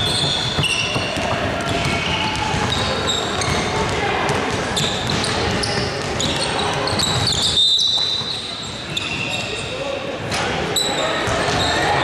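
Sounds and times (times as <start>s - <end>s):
basketball bouncing: 0.0s - 8.2s
sneakers squeaking on floor: 0.0s - 10.0s, 10.7s - 12.0s.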